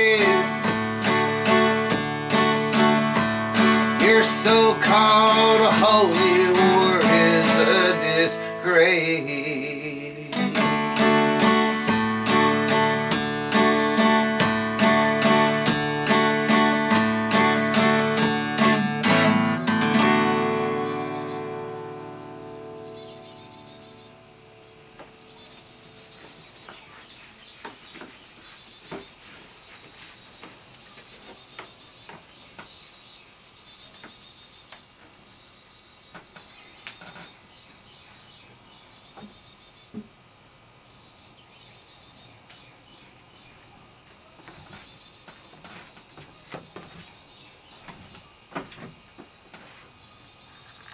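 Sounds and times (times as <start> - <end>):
acoustic guitar chord: 0.0 - 25.9
bird chirping: 0.0 - 50.9
insects trilling: 0.0 - 50.9.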